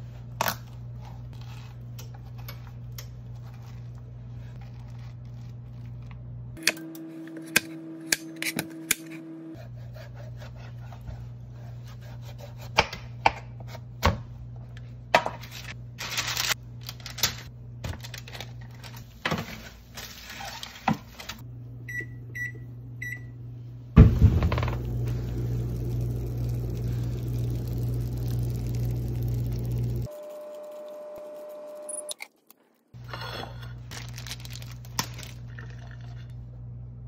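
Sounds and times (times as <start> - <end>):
steady low hum: 21.4 - 31.9
appliance beeping: 21.6 - 32.2
meat sizzling loudly: 24.5 - 30.2.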